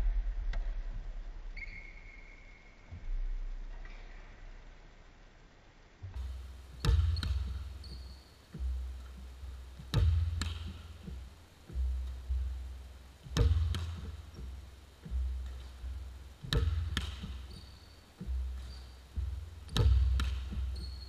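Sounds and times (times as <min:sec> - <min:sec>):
basketball bouncing on wooden floor: 0:06.1 - 0:21.0.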